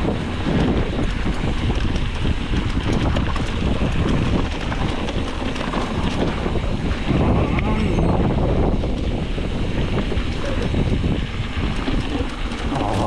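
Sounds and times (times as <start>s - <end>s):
mountain bike clattering on trail: 0.0s - 7.4s, 8.2s - 13.0s
wind buffeting microphone: 0.0s - 13.0s.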